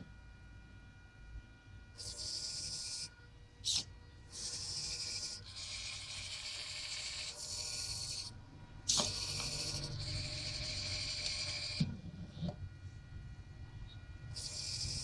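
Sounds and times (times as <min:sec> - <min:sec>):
servo motors whirring: 0:02.0 - 0:12.6, 0:14.3 - 0:15.0.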